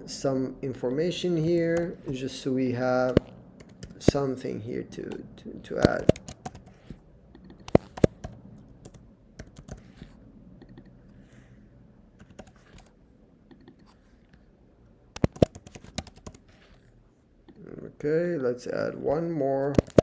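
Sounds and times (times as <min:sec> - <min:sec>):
computer keyboard typing: 0:03.1 - 0:04.2, 0:05.8 - 0:06.8, 0:07.4 - 0:09.9, 0:12.2 - 0:13.9, 0:15.2 - 0:16.5, 0:19.7 - 0:20.0
loud keyboard clacks: 0:05.8 - 0:06.7, 0:15.2 - 0:16.4.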